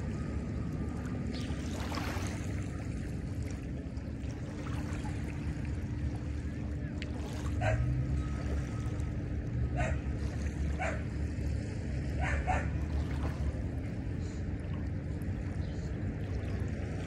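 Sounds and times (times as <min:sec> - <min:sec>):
steady low rumble: 0:00.0 - 0:17.0
waves lapping on sandy beach: 0:00.0 - 0:17.0
dog barking: 0:07.6 - 0:07.9, 0:09.8 - 0:10.1, 0:10.8 - 0:11.0, 0:12.2 - 0:12.7.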